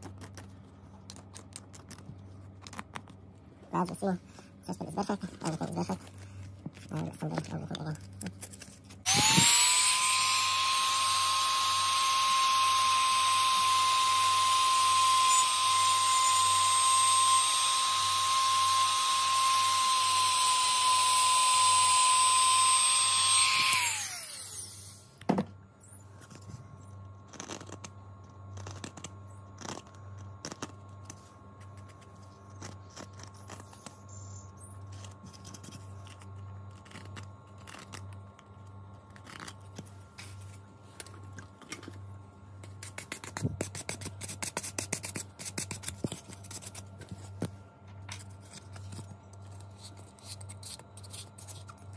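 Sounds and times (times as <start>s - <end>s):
rotary tool whine: 9.0s - 25.2s.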